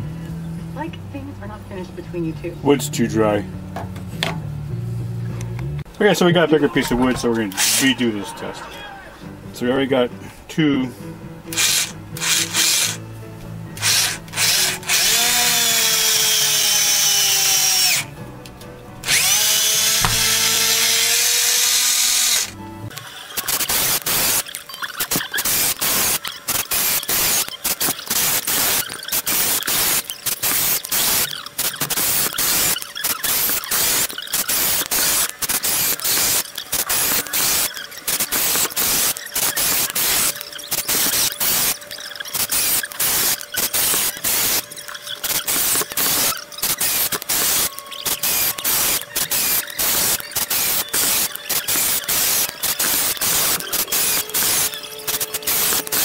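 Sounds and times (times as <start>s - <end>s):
drill stuttering chatter: 6.4s - 9.2s, 11.5s - 13.0s, 13.8s - 18.1s, 19.0s - 56.0s
cordless drill driving screws: 7.6s - 7.9s, 11.5s - 13.0s, 13.8s - 18.1s, 19.0s - 56.0s.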